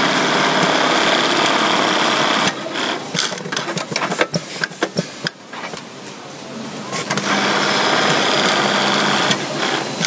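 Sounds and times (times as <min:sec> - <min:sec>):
sewing machine running fast: 0:00.0 - 0:03.4, 0:07.2 - 0:10.0
mechanical clicks and clacks: 0:02.4 - 0:05.9, 0:09.2 - 0:10.0.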